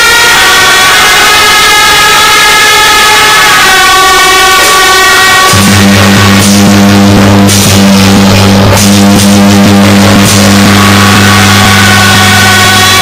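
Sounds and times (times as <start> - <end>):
held wind instrument tones: 0.0 - 13.0
rapid drum and cymbal strokes: 5.5 - 13.0.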